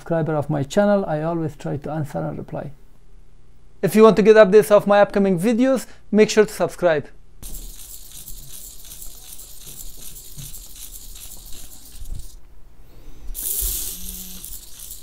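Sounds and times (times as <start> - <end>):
servos whirring and buzzing: 7.4 - 12.4, 13.0 - 15.0
thin rattly hiss: 7.4 - 15.0.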